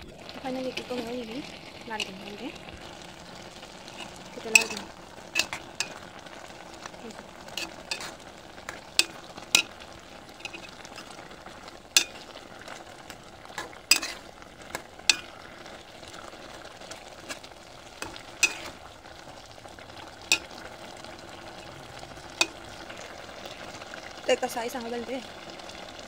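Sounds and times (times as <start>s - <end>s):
spoon clinking against metal pot: 4.4s - 6.0s, 9.0s - 9.8s, 12.0s - 12.2s, 13.9s - 14.2s, 15.1s - 15.3s, 20.3s - 20.6s.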